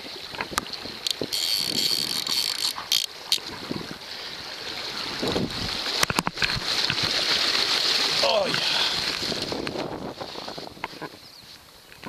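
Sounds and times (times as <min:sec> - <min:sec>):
wind on microphone: 0:00.0 - 0:04.0, 0:04.9 - 0:07.2, 0:08.1 - 0:11.4
rushing stream water: 0:00.0 - 0:12.0.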